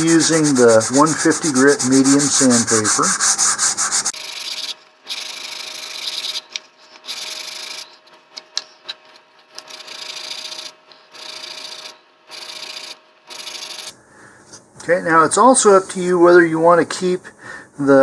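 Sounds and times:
sandpaper rubbing on wood: 0:00.0 - 0:04.2.

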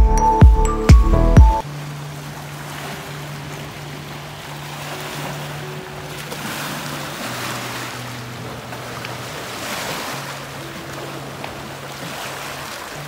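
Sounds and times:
waves splashing against rocks: 0:01.6 - 0:13.0
soft background music: 0:03.6 - 0:13.0.

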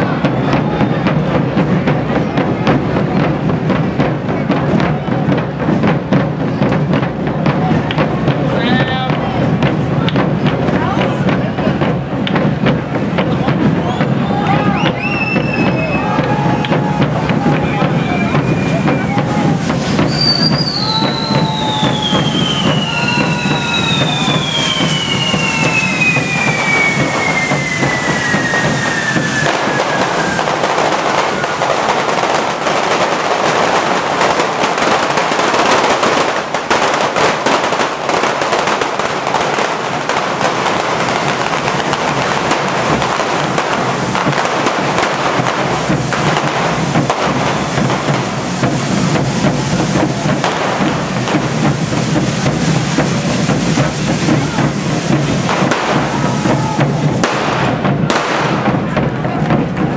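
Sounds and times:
firecracker bangs: 0:00.0 - 0:59.9
firework fountains hissing: 0:00.0 - 0:59.9
falling whistle: 0:14.7 - 0:16.2, 0:20.0 - 0:30.6.

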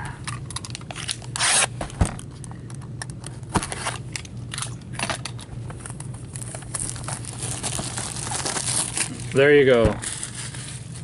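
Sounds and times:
plastic wrap and cardboard crackling: 0:06.2 - 0:11.0.

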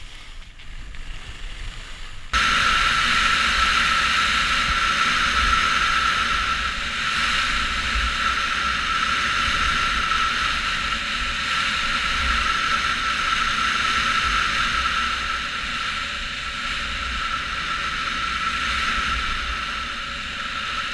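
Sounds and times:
skis sliding over snow: 0:00.0 - 0:03.6
wind buffeting microphone: 0:00.0 - 0:20.9
thin steady tone: 0:02.3 - 0:20.9.

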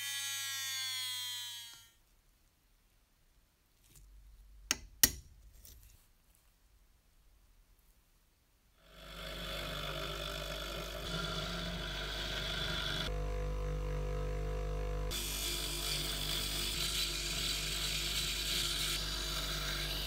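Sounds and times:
file against spinning steel rod: 0:08.9 - 0:13.1, 0:15.1 - 0:20.0
electric drill running: 0:09.3 - 0:13.5, 0:14.9 - 0:20.0.

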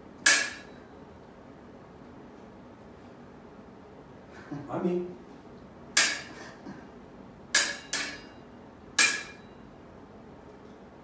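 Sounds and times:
sword blades clashing: 0:00.2 - 0:00.8, 0:06.0 - 0:06.4, 0:07.6 - 0:08.3, 0:09.0 - 0:09.4.

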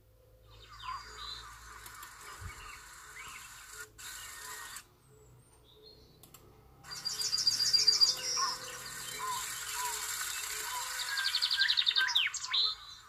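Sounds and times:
bird-like chirps through speakers: 0:00.5 - 0:04.8, 0:06.9 - 0:13.0.

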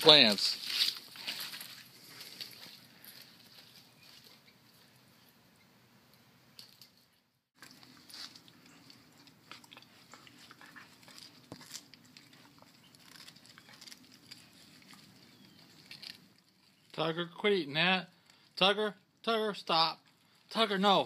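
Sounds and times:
dog chewing roots: 0:07.6 - 0:16.9.

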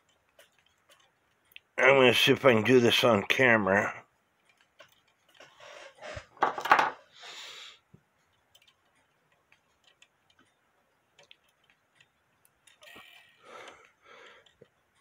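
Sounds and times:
small metal parts clicking: 0:00.0 - 0:01.8, 0:04.4 - 0:05.6, 0:08.2 - 0:15.0.

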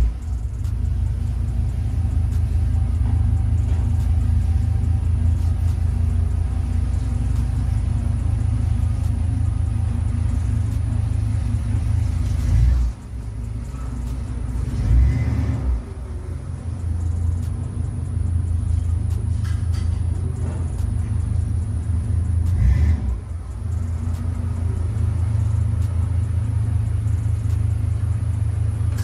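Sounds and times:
car engine idling: 0:00.0 - 0:29.0.

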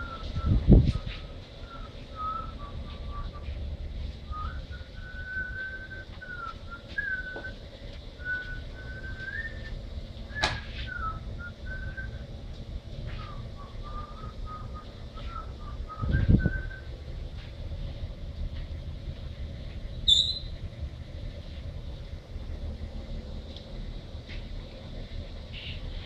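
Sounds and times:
steady low rumble: 0:00.0 - 0:26.0
person whistling a tune: 0:04.3 - 0:07.6, 0:08.2 - 0:09.7.

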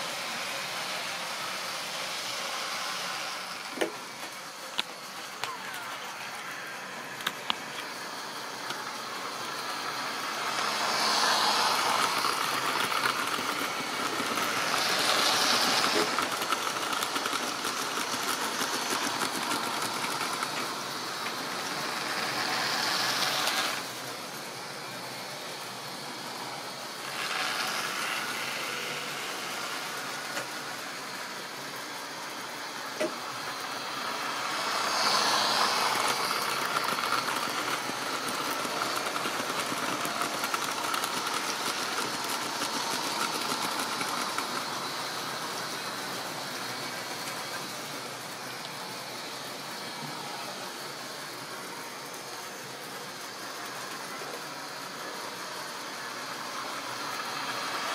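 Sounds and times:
model train motors whirring: 0:00.0 - 0:57.9
wheels rattling over rail joints: 0:10.4 - 0:24.1, 0:33.9 - 0:48.2.

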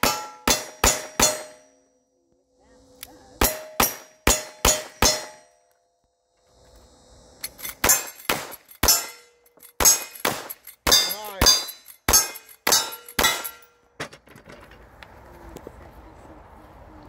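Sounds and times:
steel target ringing: 0:00.0 - 0:02.0, 0:03.4 - 0:05.7, 0:07.5 - 0:13.9
rifle shots: 0:07.7 - 0:09.2, 0:09.8 - 0:13.6.

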